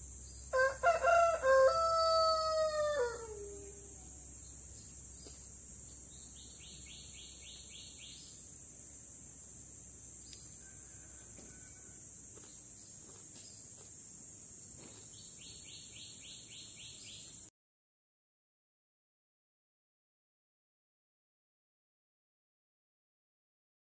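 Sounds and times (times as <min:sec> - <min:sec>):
insects droning: 0:00.0 - 0:17.5.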